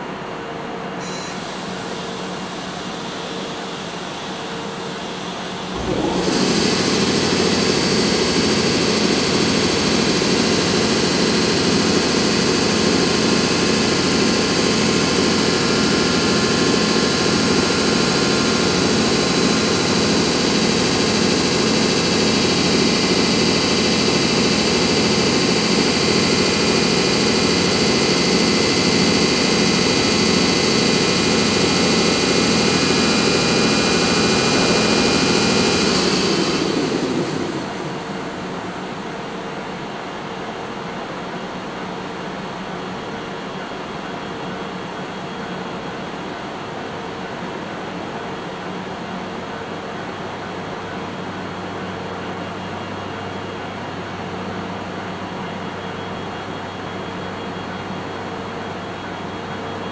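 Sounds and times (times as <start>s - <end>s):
high whine: 1.0s - 39.7s
locomotive blowers whirring: 5.6s - 39.2s.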